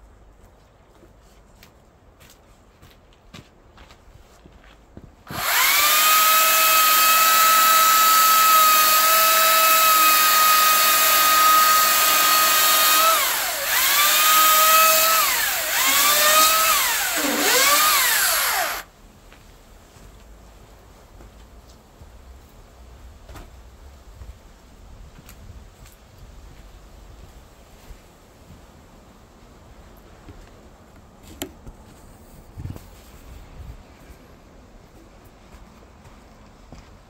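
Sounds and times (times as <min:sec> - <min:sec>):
electric chainsaw whine: 0:05.3 - 0:18.9.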